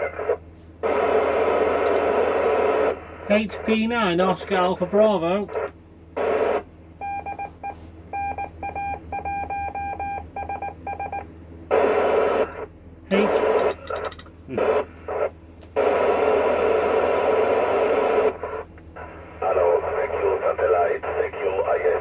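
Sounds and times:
sharp radio clicks: 0:01.8 - 0:02.7, 0:05.4 - 0:05.8, 0:12.3 - 0:16.0.

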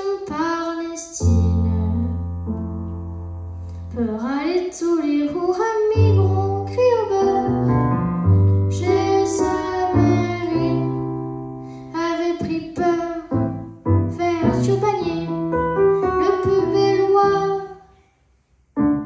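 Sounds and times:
girl singing into microphone: 0:00.0 - 0:02.3, 0:03.7 - 0:17.9
digital piano chords: 0:00.0 - 0:17.8, 0:18.7 - 0:19.0.

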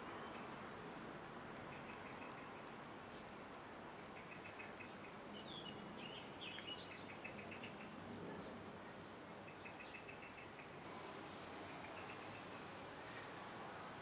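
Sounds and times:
steady background hiss: 0:00.0 - 0:14.0
birds chirping: 0:04.0 - 0:13.6.

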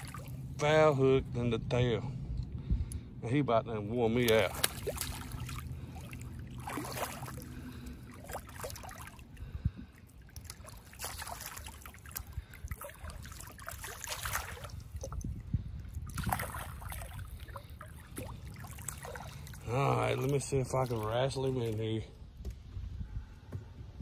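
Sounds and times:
fish thrashing and splashing water: 0:00.0 - 0:00.6, 0:04.2 - 0:21.8
steady low rumble: 0:00.0 - 0:24.0.

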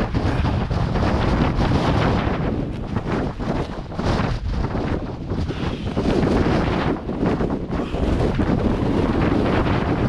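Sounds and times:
gale wind buffeting microphone: 0:00.0 - 0:10.0.

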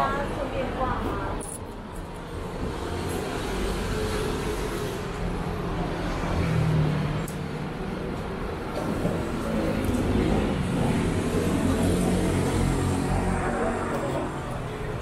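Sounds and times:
rumble of passing cars: 0:00.0 - 0:15.0
passing car engine: 0:08.8 - 0:15.0.

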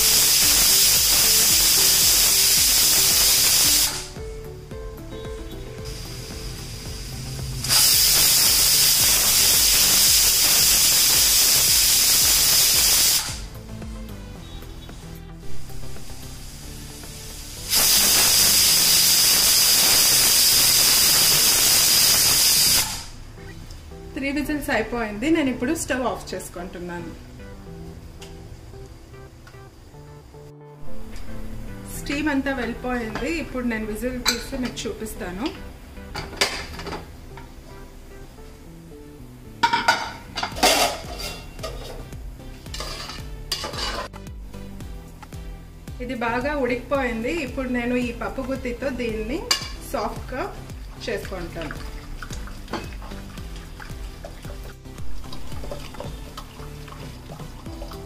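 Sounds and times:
pressure cooker whistle: 0:00.0 - 0:04.1, 0:07.6 - 0:13.4, 0:17.7 - 0:23.1.

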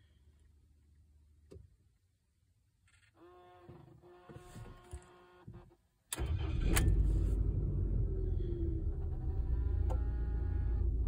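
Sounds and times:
car engine starting and idling: 0:06.1 - 0:11.0.

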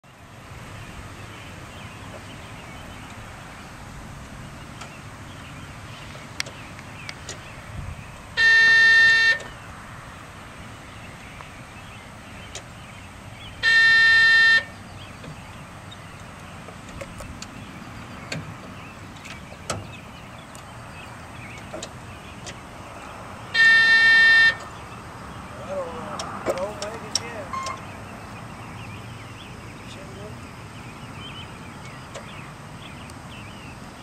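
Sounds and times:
electronic warning alarm tone: 0:08.4 - 0:09.5, 0:13.6 - 0:14.8, 0:23.6 - 0:24.6.

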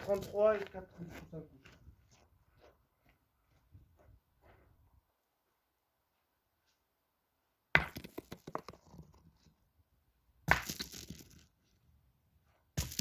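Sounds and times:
gravel crunching and rattling: 0:00.0 - 0:02.2
metal balls landing on gravel: 0:07.7 - 0:09.3, 0:10.4 - 0:11.6, 0:12.8 - 0:13.0.

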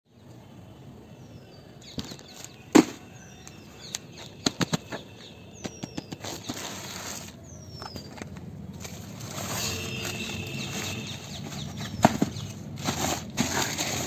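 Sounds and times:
plastic mailer bag crinkling: 0:12.8 - 0:14.0.

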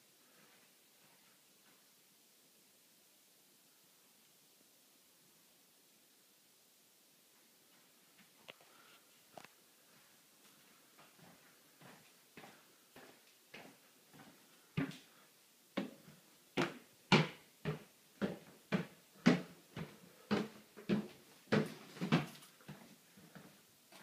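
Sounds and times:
footsteps on stairs: 0:09.9 - 0:15.2, 0:15.8 - 0:24.0.

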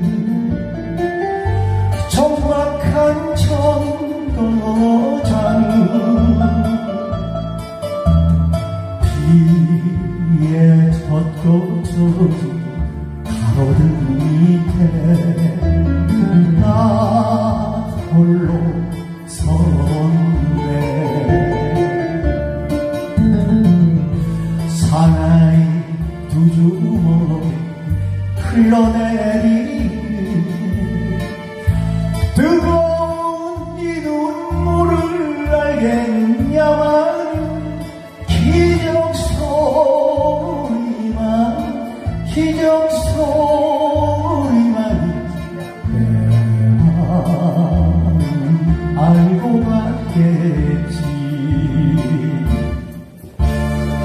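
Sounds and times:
karaoke backing track: 0:00.0 - 0:54.0
man singing: 0:00.0 - 0:54.0.

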